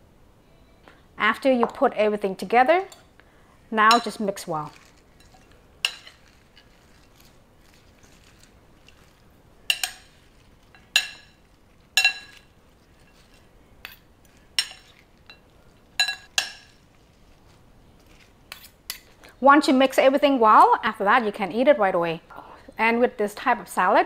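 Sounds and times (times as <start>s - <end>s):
metal spoons clinking on ceramic bowl: 3.8s - 6.9s, 9.7s - 16.8s.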